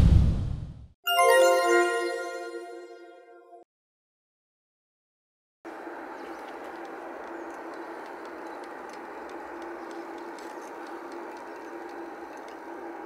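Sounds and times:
distant jet engine hum: 0:05.7 - 0:13.0
faint clicks: 0:06.3 - 0:12.8.

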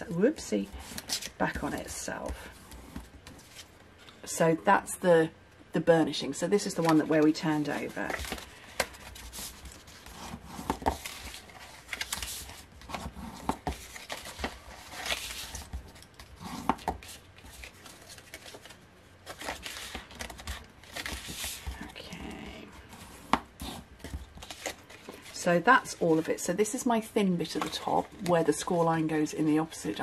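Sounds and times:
paper rustling and crackling: 0:06.6 - 0:22.0, 0:22.8 - 0:26.3.

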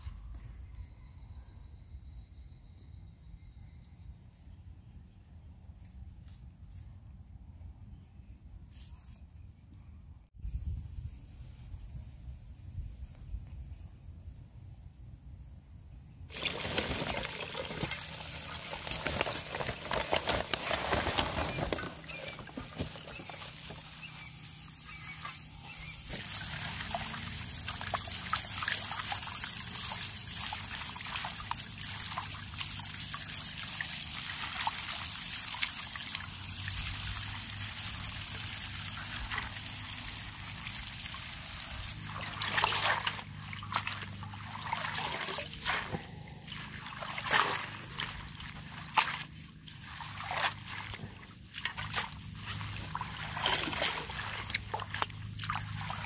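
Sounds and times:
water splashing in metal bowl: 0:16.3 - 0:56.0.

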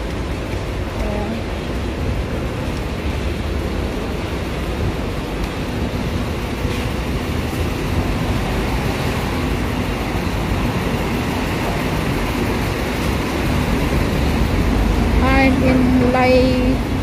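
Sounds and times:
road traffic rumbling: 0:00.0 - 0:17.0.

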